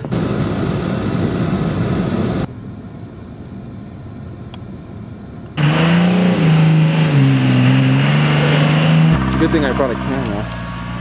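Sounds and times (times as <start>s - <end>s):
truck engine working through snow: 0.0s - 2.6s, 5.4s - 11.0s
truck engine and road noise: 0.0s - 11.0s.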